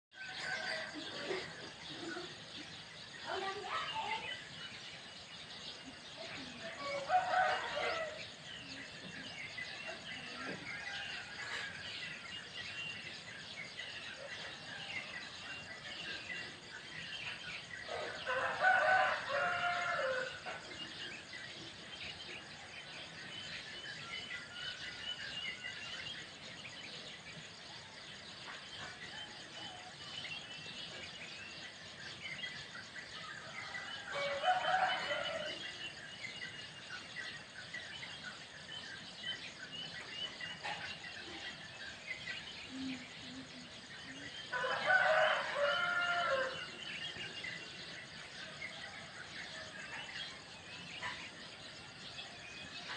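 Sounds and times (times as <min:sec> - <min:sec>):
insects chirping: 0:00.1 - 0:52.9
small birds chirping: 0:00.1 - 0:52.9
rooster crowing: 0:06.8 - 0:08.2, 0:18.0 - 0:20.6, 0:33.5 - 0:35.8, 0:44.5 - 0:47.0.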